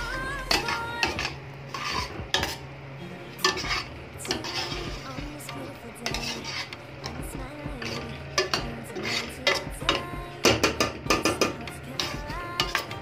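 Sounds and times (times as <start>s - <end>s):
spatula scraping and knocking pot: 0.5s - 2.6s, 3.4s - 13.0s
spatula stirring thick sauce: 0.6s - 2.6s, 3.4s - 10.0s.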